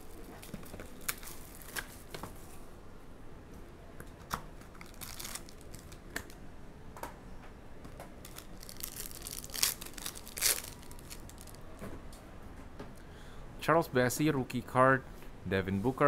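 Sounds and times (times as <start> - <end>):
foil pack tearing and crinkling: 0.4 - 2.0, 4.8 - 6.0, 8.2 - 11.6.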